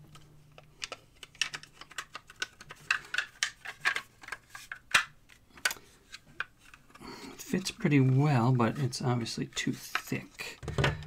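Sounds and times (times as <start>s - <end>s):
plastic and metal clicking and scraping: 0.0s - 11.0s.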